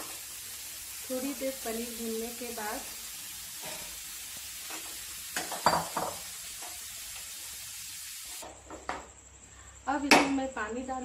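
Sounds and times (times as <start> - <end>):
food sizzling in oil: 0.0 - 8.5.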